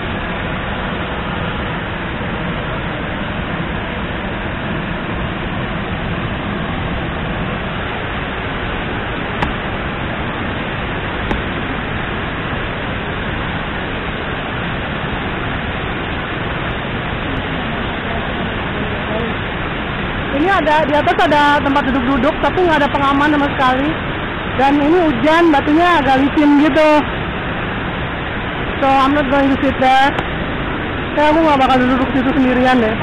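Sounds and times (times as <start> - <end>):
rain: 0.0 - 33.0
waterfall rushing: 0.0 - 33.0.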